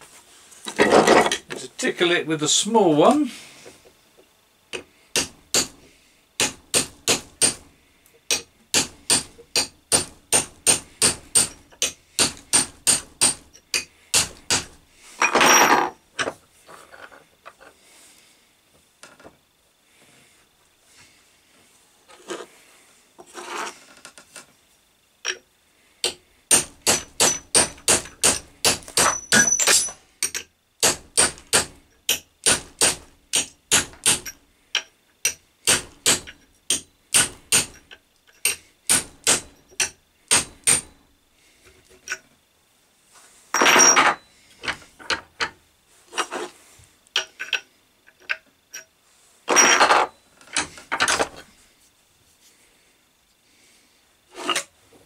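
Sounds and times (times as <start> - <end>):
hammer tapping steel punch: 8.3 - 14.7, 26.0 - 41.0
short scraping sounds: 22.1 - 23.9, 46.0 - 46.8, 54.3 - 54.8.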